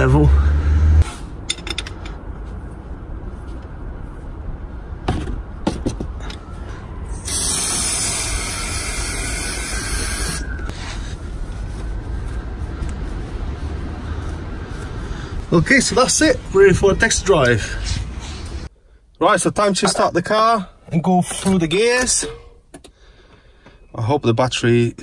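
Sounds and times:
spray hissing: 7.2 - 10.5.

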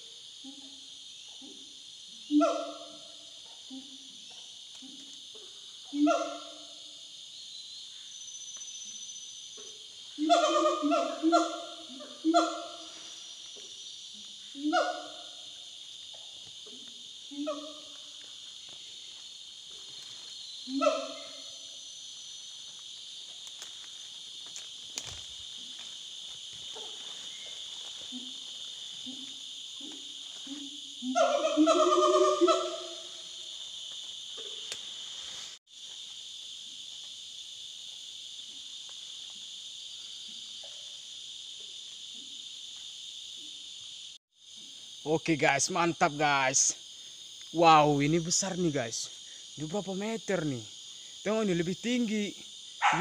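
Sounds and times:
gibbons hooting: 10.2 - 12.9, 31.0 - 33.1.

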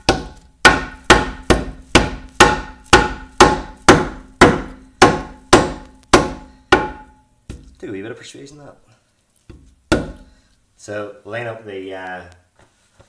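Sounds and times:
hammer striking metal: 0.0 - 7.3.

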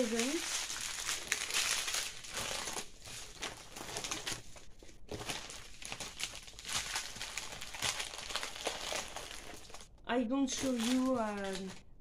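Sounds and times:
person speaking: 0.0 - 0.6, 10.0 - 11.9
plastic packaging crinkling: 0.0 - 12.0.

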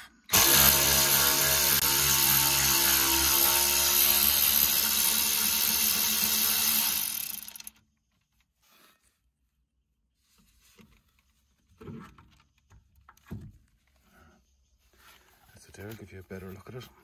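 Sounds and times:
cordless electric ratchet running: 0.3 - 7.8.

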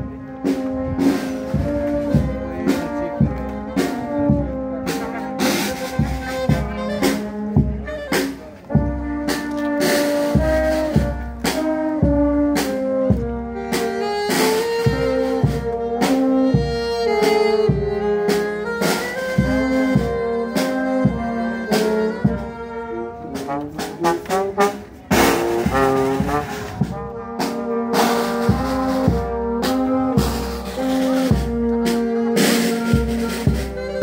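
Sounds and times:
brass band playing: 0.0 - 34.0
percussion strokes: 23.3 - 34.0.

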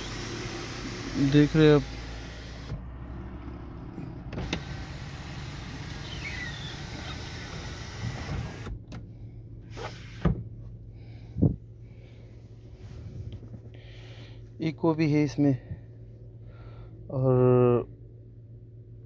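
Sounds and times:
sunroof motor whirring: 0.0 - 2.8, 4.3 - 8.8
car engine idling: 0.0 - 9.7.

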